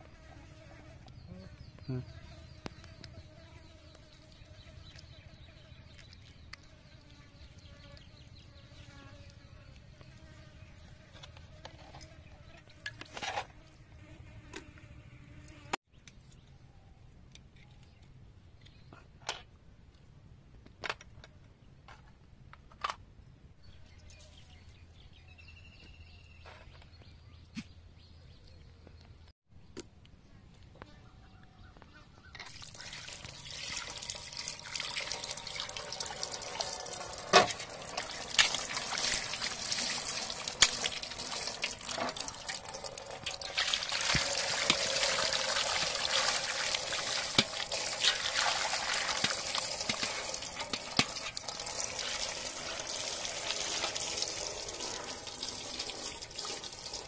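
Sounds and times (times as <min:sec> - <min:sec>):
fly buzzing: 0:34.6 - 0:57.0.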